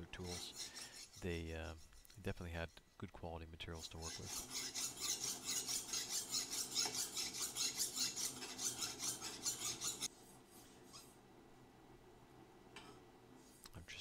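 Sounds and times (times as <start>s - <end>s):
file rasping on steel: 0.0s - 2.9s, 3.7s - 10.1s.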